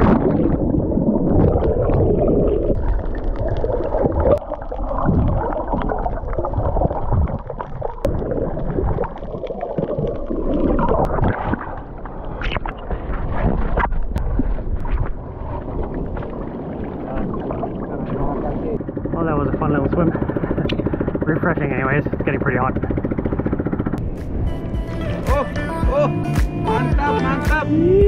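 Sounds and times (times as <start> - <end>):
water splash: 0.0 - 18.7
underwater gurgling and bubbling: 0.0 - 21.2.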